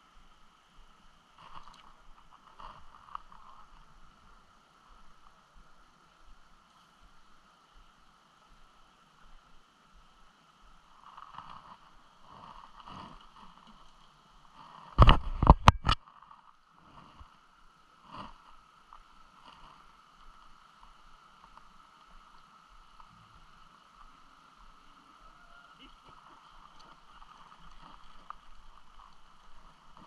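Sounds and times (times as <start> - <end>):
river water rushing: 16.1 - 30.0.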